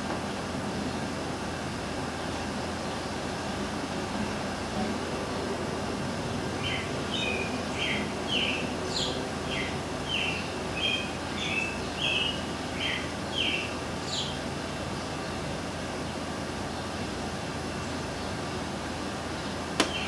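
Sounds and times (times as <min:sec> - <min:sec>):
background hiss: 0:00.0 - 0:20.0
bird chirping: 0:06.6 - 0:14.4, 0:19.4 - 0:20.0.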